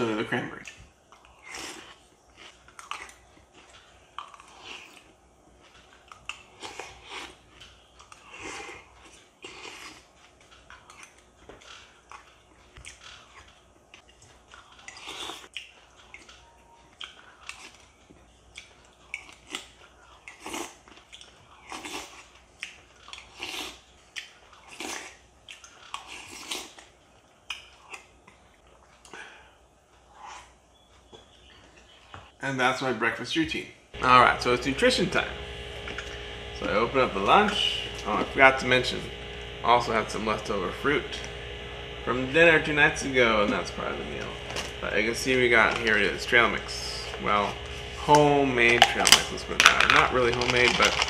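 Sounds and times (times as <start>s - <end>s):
person chewing and slurping: 1.1s - 29.2s.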